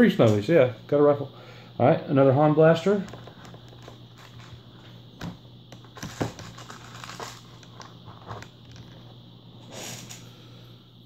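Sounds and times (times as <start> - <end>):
plastic toys rustling and clicking: 5.8 - 9.0.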